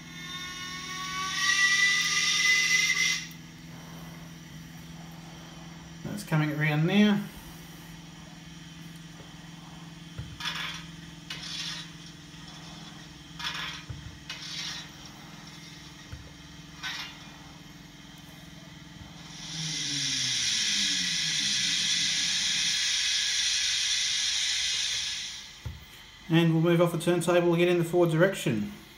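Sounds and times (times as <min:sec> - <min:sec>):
model turntable motor humming: 0:00.0 - 0:26.6
steady steam hiss: 0:00.0 - 0:28.9
short hissing bursts: 0:16.8 - 0:26.3.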